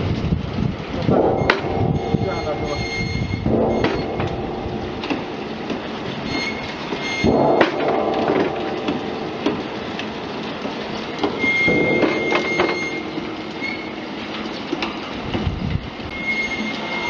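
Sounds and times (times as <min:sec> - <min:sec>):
conveyor motor rattling and rumbling: 0:00.0 - 0:17.0
thin high whine: 0:16.1 - 0:17.0.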